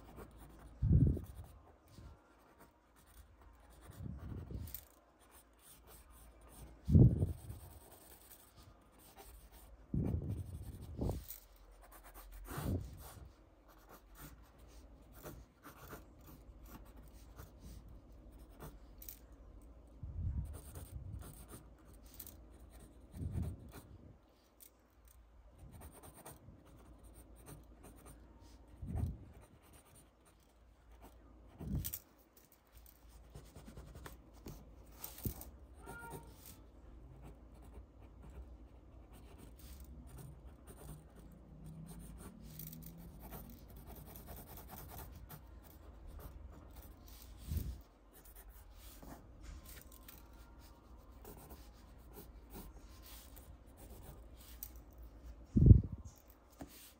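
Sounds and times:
pencil scratching on paper: 0.0 - 18.9, 20.4 - 24.0, 25.6 - 31.8, 33.0 - 36.6, 37.2 - 41.3, 41.9 - 55.1.

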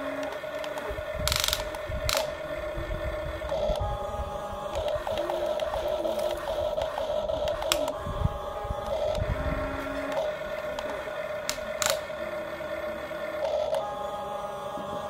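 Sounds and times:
steady hum: 0.0 - 15.0
toy electric motors whining: 0.0 - 15.0.

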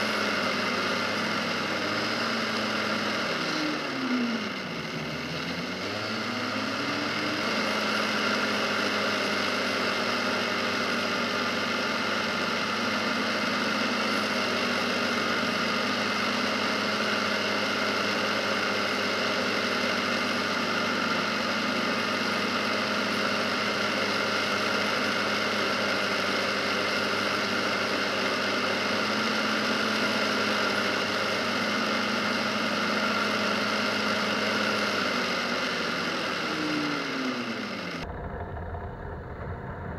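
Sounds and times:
atv engine accelerating: 0.0 - 39.9
wind noise: 38.1 - 39.9.

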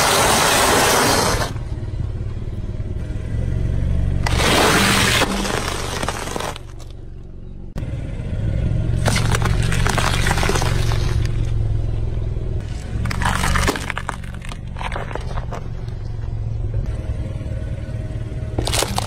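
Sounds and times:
car engine running low: 0.0 - 19.0
tyre crushing food: 4.2 - 6.9, 9.0 - 11.4, 12.7 - 15.9, 18.6 - 19.0.

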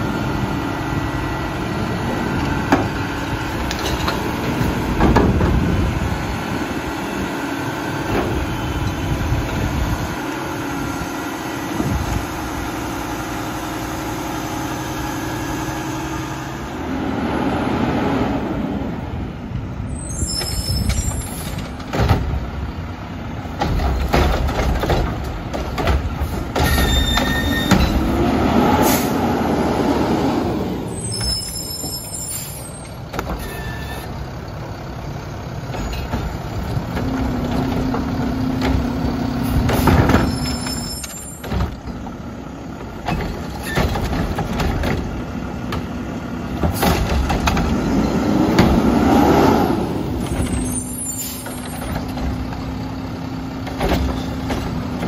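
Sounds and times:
garbage truck diesel engine revving: 0.0 - 19.5, 24.4 - 31.7, 41.7 - 55.0.

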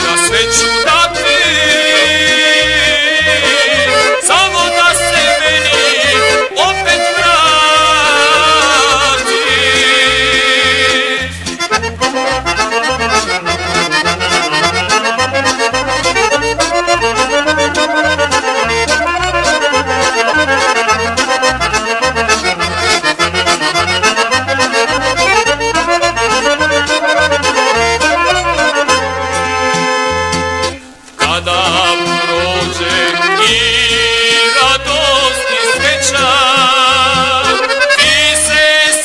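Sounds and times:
accordion fast melodic runs: 0.0 - 39.0
stepping bass line: 0.0 - 39.0.

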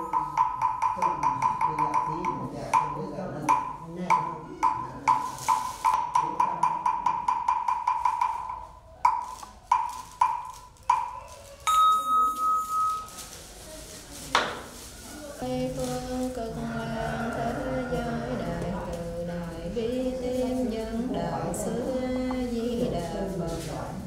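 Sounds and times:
wood block strokes: 0.0 - 13.2
bell-like tone ringing: 11.7 - 13.2.

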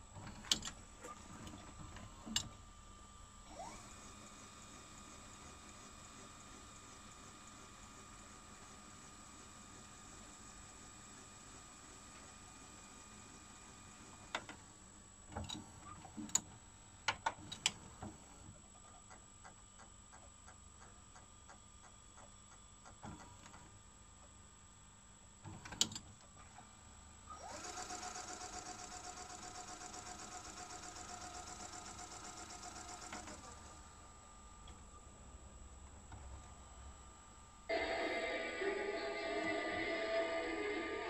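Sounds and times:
tape mechanism clicks and clunks: 0.1 - 2.6, 27.4 - 33.8
tape motor whirring: 3.4 - 14.4, 27.3 - 34.0.

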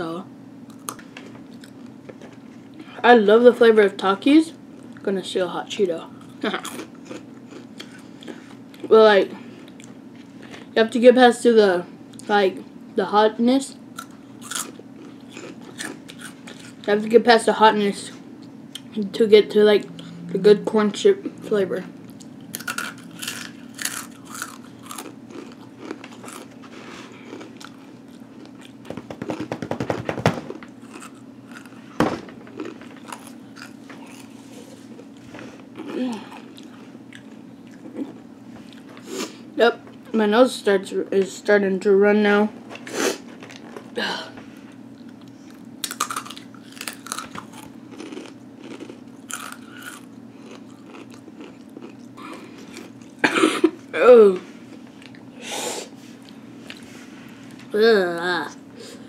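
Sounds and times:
crunching and chewing chips: 0.7 - 2.9, 6.0 - 10.7, 13.9 - 17.0, 22.0 - 39.1, 42.7 - 44.0, 44.9 - 53.3.

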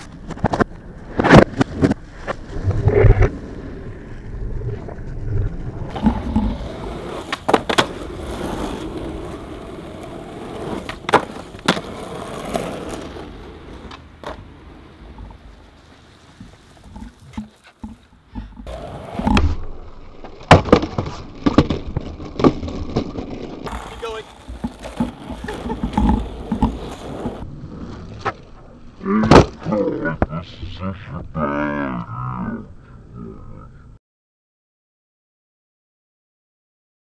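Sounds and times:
skateboard wheels rolling on asphalt: 0.0 - 29.0
skateboard clacking on pavement: 5.9 - 15.2, 20.5 - 27.4.

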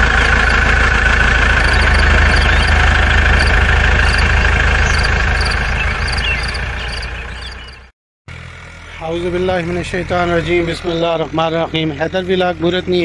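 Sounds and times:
tractor engine idling: 0.0 - 7.8
faint short high chirps: 1.6 - 2.8.

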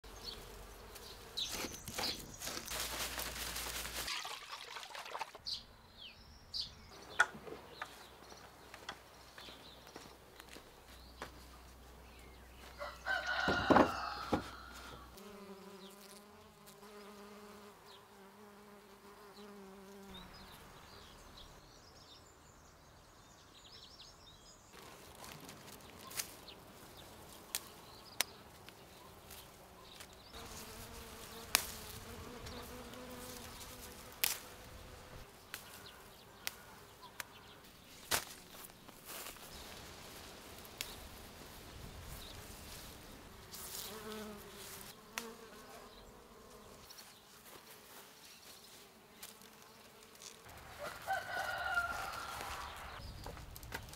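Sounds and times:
insect buzzing: 0.0 - 5.3, 12.8 - 20.8, 26.1 - 53.0.

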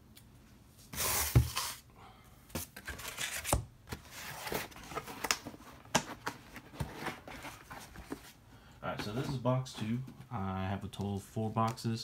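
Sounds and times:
cardboard boxes rustling and tapping: 2.6 - 8.4.

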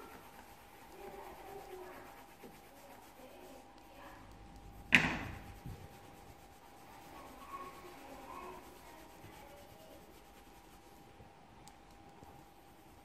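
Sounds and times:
pencil rubbing on paper: 0.0 - 11.3, 12.2 - 13.0
sharp knock against table: 4.9 - 5.4.

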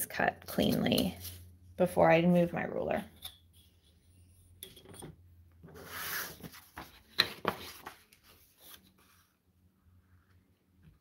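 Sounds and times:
paper sheets sliding and rustling: 5.7 - 9.4.

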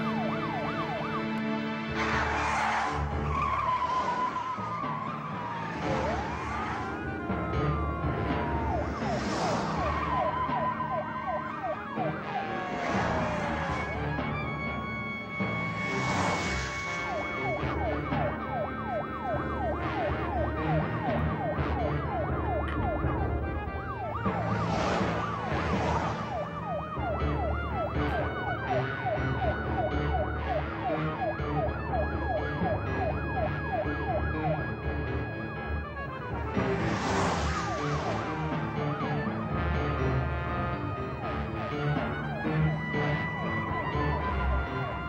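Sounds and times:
police siren yelping: 0.0 - 39.9, 40.9 - 45.0
car engines rumbling: 0.0 - 45.0
rushing noise: 2.0 - 17.8, 23.4 - 26.7, 36.0 - 39.4.

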